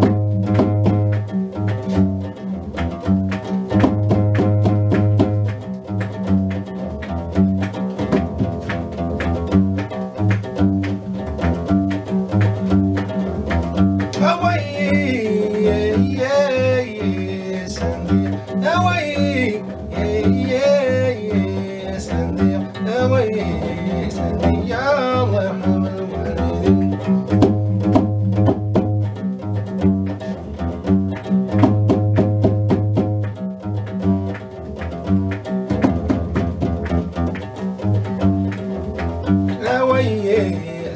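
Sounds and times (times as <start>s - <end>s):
plucked bass lute: 0.0s - 40.9s
man singing: 14.2s - 27.2s, 39.5s - 40.9s.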